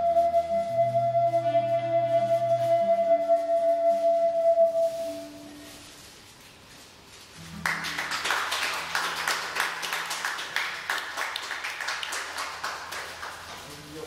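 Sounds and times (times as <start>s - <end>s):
audience applauding: 7.4s - 14.0s.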